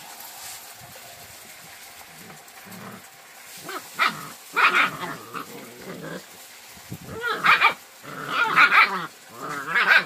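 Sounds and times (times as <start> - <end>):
puppies growling: 2.0 - 10.0
puppies yapping and yelping: 2.2 - 6.3, 7.0 - 10.0.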